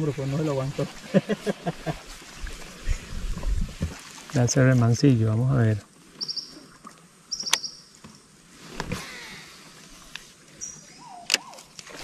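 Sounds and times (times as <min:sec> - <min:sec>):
bird whistle: 0:06.2 - 0:06.6, 0:07.3 - 0:07.8
birds chirping: 0:06.2 - 0:08.0, 0:10.5 - 0:11.8.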